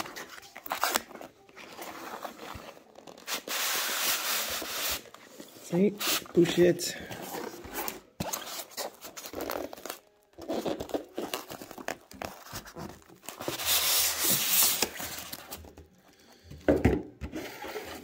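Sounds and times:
cardboard crinkling: 0:00.0 - 0:15.8
styrofoam scraping in cardboard: 0:01.6 - 0:06.6, 0:07.2 - 0:15.5.

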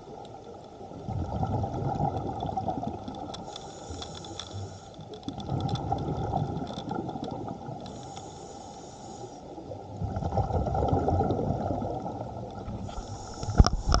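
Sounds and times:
exhaled bubbles rushing: 0:01.0 - 0:03.3, 0:05.3 - 0:07.8, 0:09.7 - 0:14.0
regulator hiss: 0:03.4 - 0:05.2, 0:07.9 - 0:09.5, 0:12.8 - 0:14.0.

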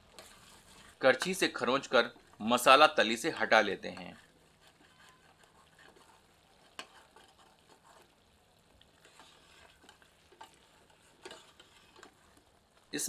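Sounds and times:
light sizzle: 0:00.0 - 0:13.0
ladle scraping a steel pot: 0:00.1 - 0:01.5, 0:04.0 - 0:08.1, 0:09.0 - 0:12.5.

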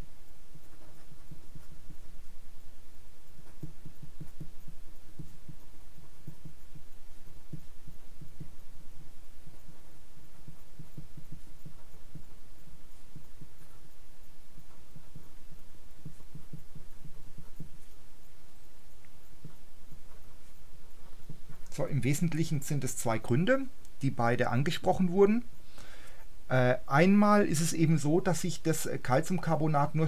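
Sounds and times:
pulsing low hum: 0:00.0 - 0:24.6
marker writing on paper: 0:03.4 - 0:08.6, 0:14.6 - 0:18.0.

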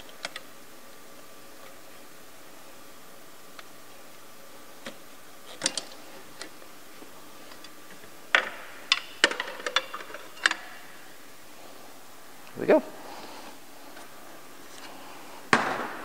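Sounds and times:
metal pipes clinking and clanking: 0:08.3 - 0:10.9.

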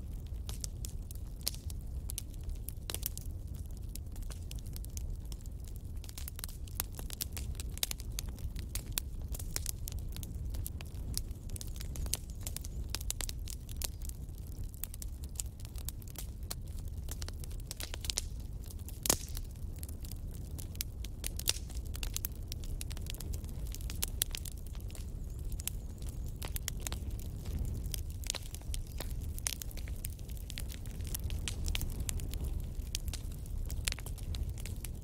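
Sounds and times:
wood fire crackling: 0:00.0 - 0:35.0
sharp pops of fire: 0:14.7 - 0:35.0.

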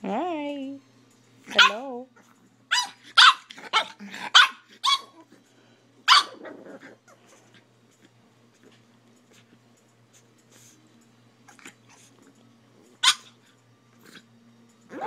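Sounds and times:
puppy barking high-pitched: 0:01.5 - 0:01.8, 0:02.7 - 0:05.2, 0:06.0 - 0:06.6, 0:13.0 - 0:13.4.

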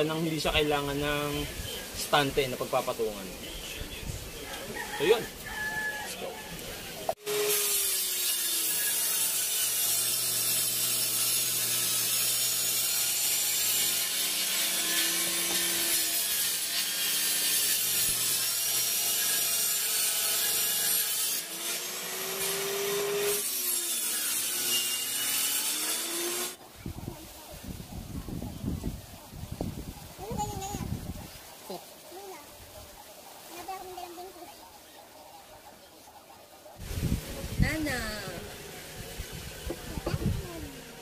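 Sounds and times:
table saw ripping plywood: 0:07.2 - 0:26.6.

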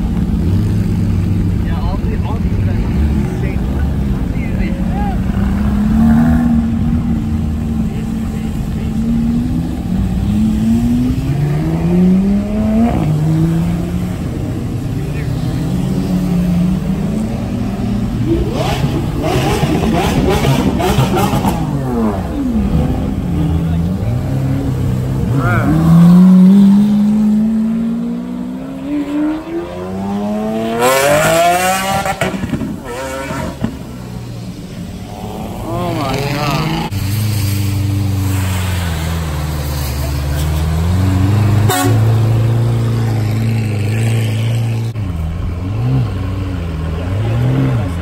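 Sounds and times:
car engine accelerating: 0:00.0 - 0:48.0
exhaust pops: 0:32.0 - 0:32.9.

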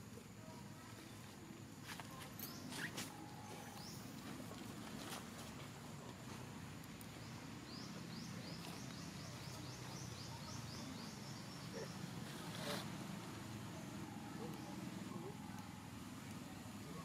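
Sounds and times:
low background noise: 0:00.0 - 0:17.0
bird chirping: 0:07.1 - 0:17.0.

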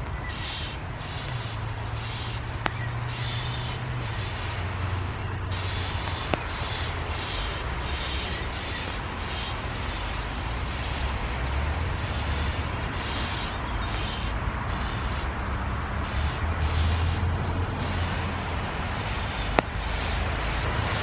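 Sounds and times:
distant road traffic rumble: 0:00.0 - 0:21.0
rain hissing: 0:00.0 - 0:21.0.

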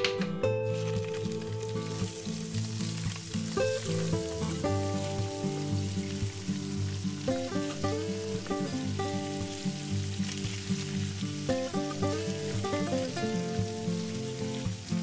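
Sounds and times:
background music: 0:00.0 - 0:15.0
fish sizzling in a frying pan: 0:00.6 - 0:15.0.

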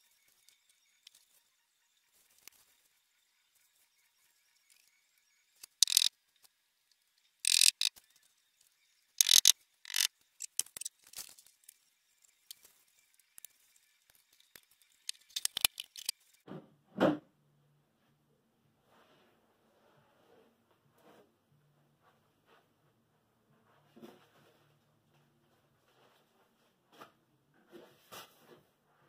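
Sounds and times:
small clicks: 0:05.6 - 0:06.1, 0:07.5 - 0:08.0, 0:09.2 - 0:11.8, 0:13.4 - 0:16.2
tools clicking and rattling: 0:05.6 - 0:06.1, 0:07.5 - 0:07.9, 0:09.2 - 0:11.5, 0:15.0 - 0:16.1.

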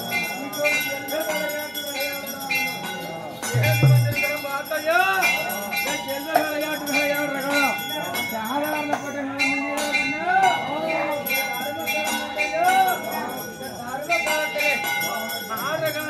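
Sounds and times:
bells jingling: 0:00.0 - 0:16.0
heavy low drum stroke: 0:03.6 - 0:04.3
drumming: 0:03.6 - 0:04.5.

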